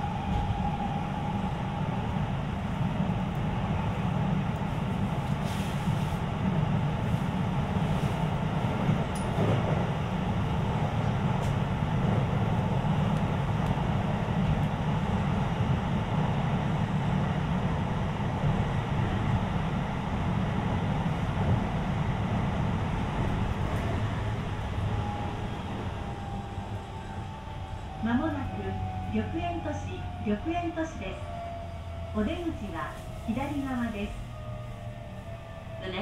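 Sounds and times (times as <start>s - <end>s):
train wheels rumbling on rails: 0.0s - 36.0s.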